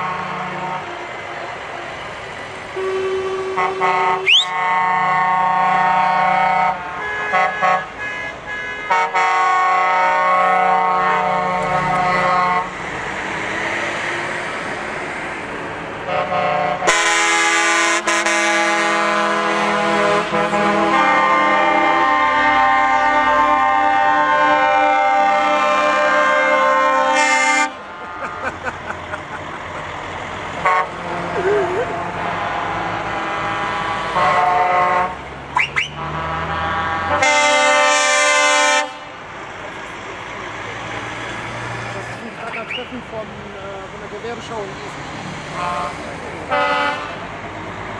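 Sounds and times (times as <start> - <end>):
truck air horns: 0.0 - 2.0, 2.7 - 12.9, 16.0 - 39.3, 45.5 - 47.4
truck engines passing: 0.0 - 47.9.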